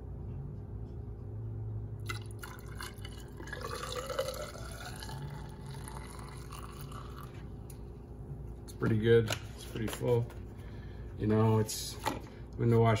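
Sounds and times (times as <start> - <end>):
fluid pouring from plastic jug: 2.0 - 7.5.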